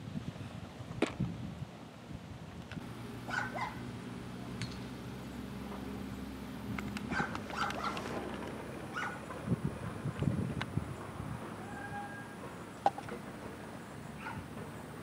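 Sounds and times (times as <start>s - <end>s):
dog barking: 3.3s - 3.8s, 7.1s - 8.0s, 8.9s - 9.2s, 14.2s - 14.5s.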